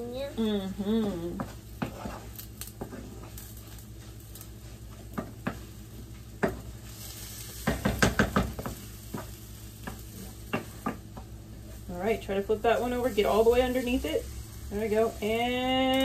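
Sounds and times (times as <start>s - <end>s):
food sizzling in oil: 0.0s - 16.0s
spatulas scraping and tapping pans: 1.3s - 11.3s.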